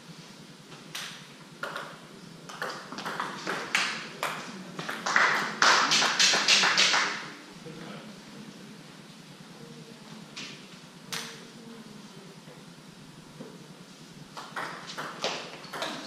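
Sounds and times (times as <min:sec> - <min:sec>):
sharp slapping sounds: 0:11.1 - 0:11.4.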